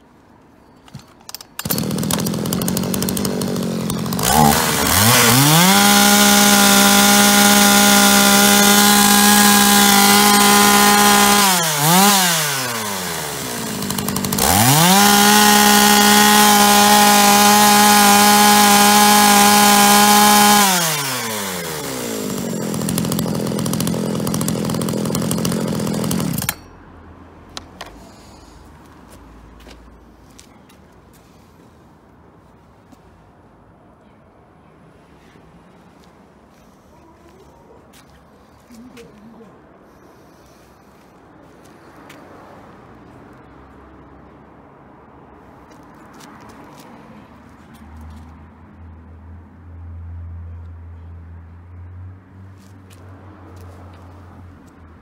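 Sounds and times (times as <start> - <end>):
chainsaw revving: 1.6 - 26.7.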